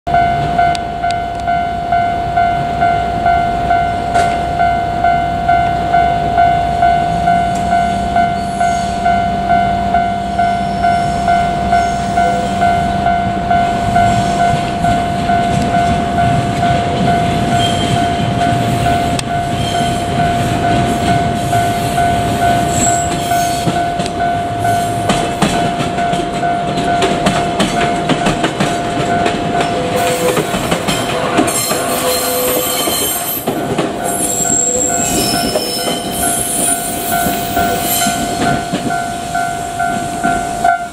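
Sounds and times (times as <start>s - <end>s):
level crossing bell clanging: 0.1s - 40.9s
high wheel squeal: 7.8s - 9.2s, 10.4s - 12.8s, 17.5s - 23.9s, 29.6s - 40.9s
train wheel clatter: 13.9s - 40.9s.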